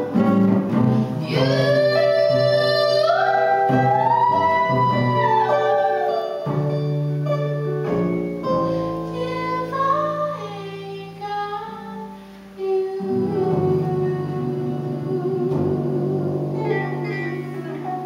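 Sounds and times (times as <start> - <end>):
upright double bass: 0.0 - 18.0
woman singing: 1.2 - 6.5, 8.9 - 18.0.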